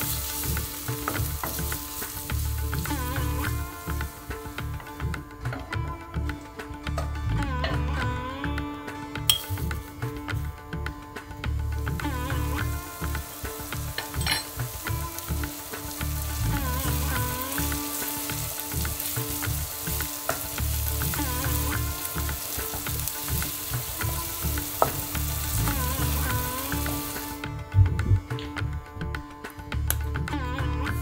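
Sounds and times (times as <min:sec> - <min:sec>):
onion sizzling in hot oil: 0:00.0 - 0:05.0, 0:12.0 - 0:27.4.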